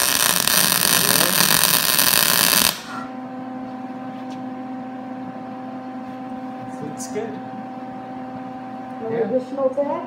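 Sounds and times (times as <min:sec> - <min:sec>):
welding arc crackling: 0:00.0 - 0:03.0
electrical hum: 0:00.0 - 0:10.0.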